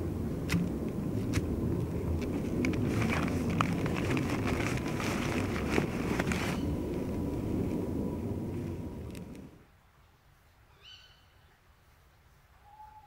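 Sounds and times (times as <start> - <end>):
wind buffeting microphone: 0.0 - 9.6
rummaging through rucksack: 2.2 - 7.1.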